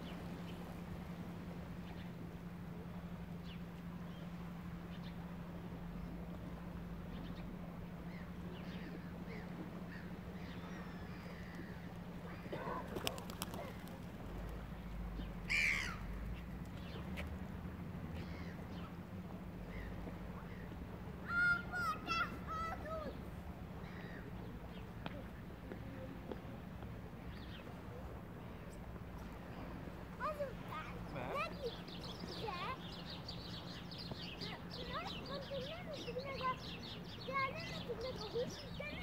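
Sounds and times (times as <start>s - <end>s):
steady low hum: 0.0s - 21.2s
birds chirping: 7.0s - 17.2s, 27.1s - 39.0s
harsh bird caw: 15.5s - 16.1s.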